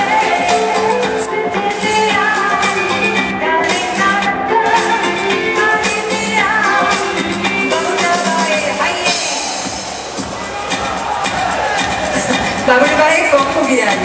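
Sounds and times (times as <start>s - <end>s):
person singing lead vocal: 0.0s - 9.6s
live pop band playing: 0.0s - 14.0s.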